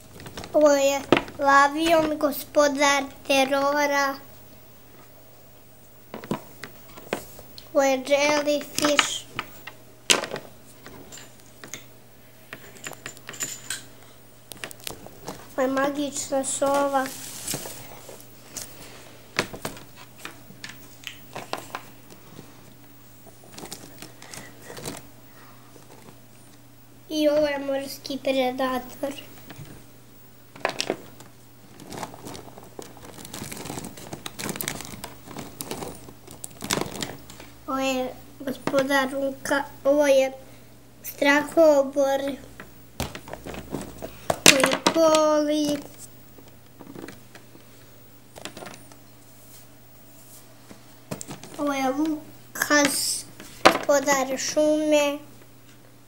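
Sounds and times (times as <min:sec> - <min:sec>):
plastic toy figures clattering: 0:00.1 - 0:02.4, 0:06.1 - 0:07.2, 0:08.2 - 0:11.8, 0:23.4 - 0:25.0, 0:30.5 - 0:37.5, 0:43.0 - 0:46.1, 0:46.7 - 0:47.5, 0:48.3 - 0:49.0, 0:52.8 - 0:54.1.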